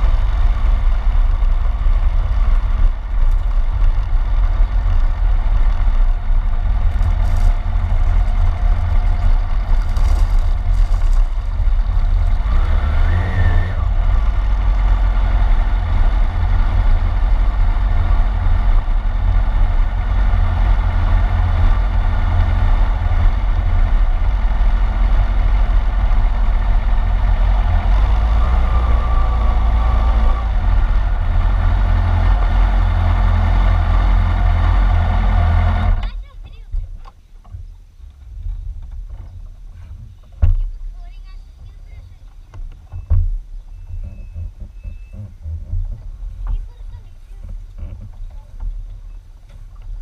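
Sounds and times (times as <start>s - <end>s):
wind rumble on microphone: 0.0s - 36.1s, 36.7s - 50.0s
motorcycle engine running: 0.0s - 36.3s.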